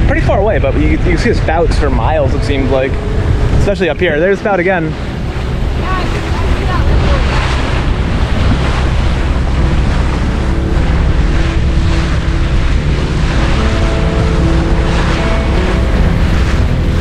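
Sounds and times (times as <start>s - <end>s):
sea rushing: 0.0s - 17.0s
wind buffeting microphone: 0.0s - 17.0s.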